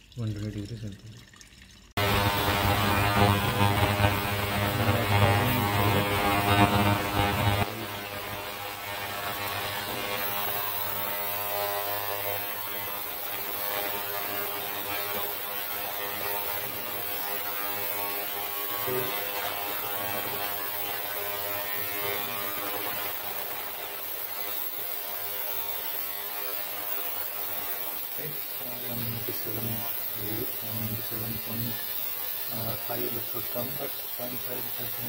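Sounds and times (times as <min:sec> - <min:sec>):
electrical hum of stirrer: 0:02.0 - 0:35.0.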